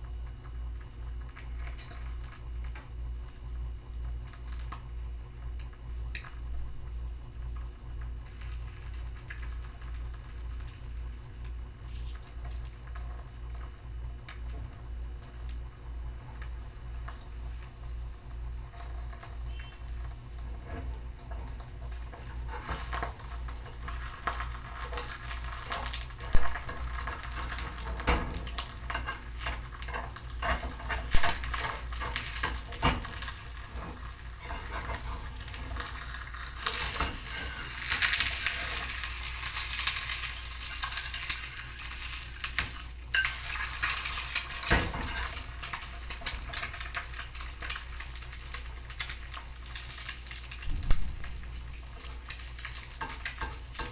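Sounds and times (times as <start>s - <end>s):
egg sizzling in hot oil: 0.0s - 53.9s
metal spatula scraping a pan: 26.6s - 39.1s, 43.1s - 45.5s.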